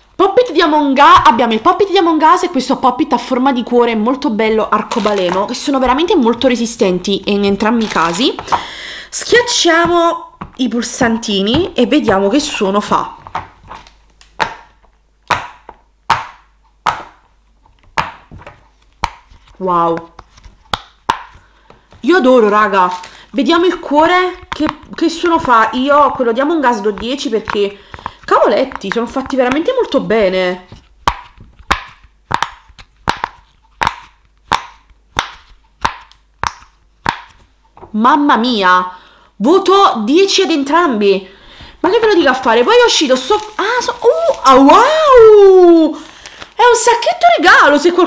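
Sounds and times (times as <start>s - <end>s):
pop-it toy bubbles popping: 31.0s - 37.4s.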